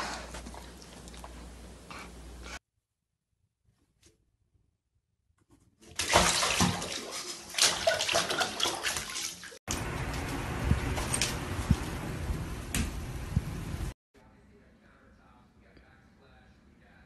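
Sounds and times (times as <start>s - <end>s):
water splashing in bathtub: 5.8s - 10.3s.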